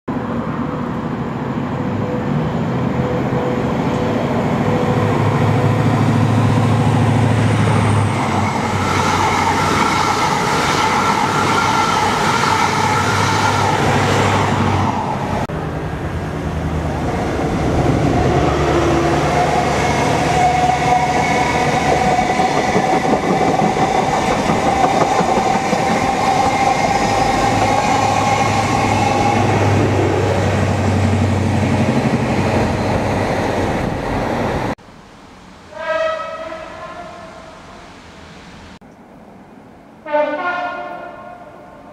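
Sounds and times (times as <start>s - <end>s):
wheels clattering on rails: 18.8s - 32.6s.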